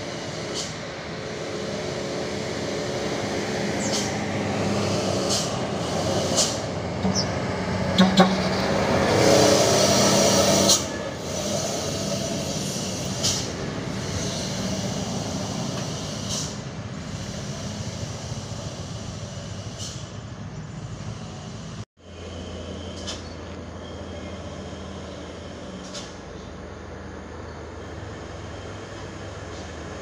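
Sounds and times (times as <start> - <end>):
loud air hiss: 0.0 - 6.9, 9.0 - 21.9
diesel truck engine: 0.0 - 30.0.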